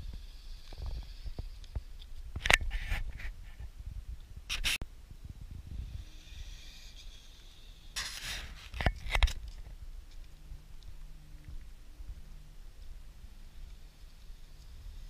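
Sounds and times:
loud scraping bursts: 5.7 - 9.3.

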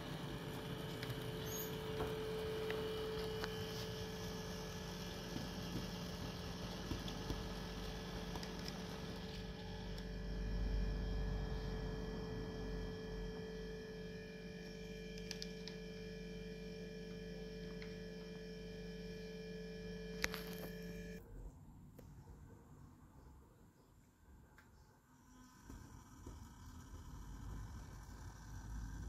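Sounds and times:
model train motor hum: 25.2 - 29.0.

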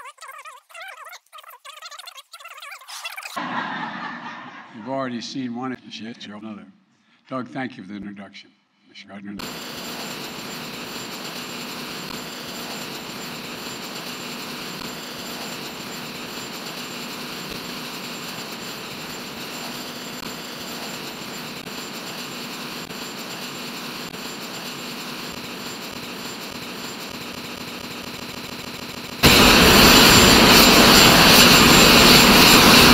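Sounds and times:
jet engine rushing with whine: 9.4 - 32.9.

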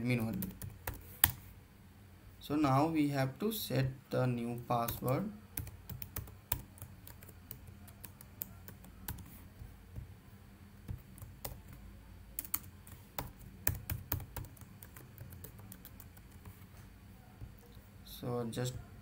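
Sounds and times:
keyboard typing: 0.2 - 1.4, 4.6 - 10.1, 10.8 - 16.7.

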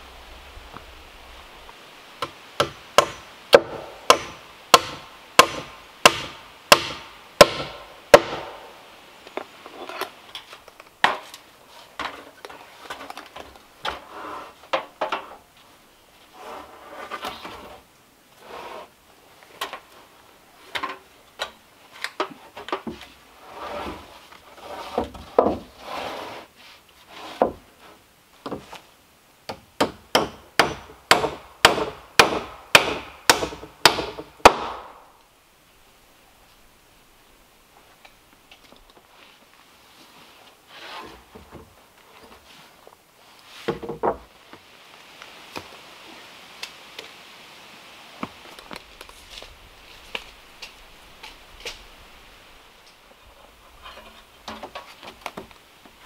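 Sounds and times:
hammering on wood: 2.2 - 8.6, 29.5 - 34.9
wooden knocks and scrapes: 22.2 - 26.4, 43.5 - 44.6, 53.3 - 55.6.

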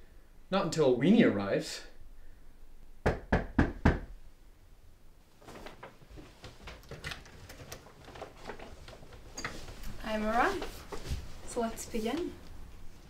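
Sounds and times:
sharp knocks: 3.0 - 4.1.

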